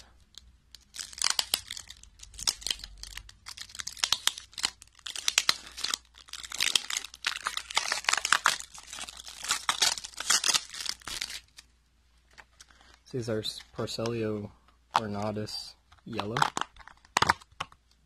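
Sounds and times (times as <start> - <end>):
tape being peeled: 0.0 - 11.7
plastic lid crinkling: 15.0 - 17.8.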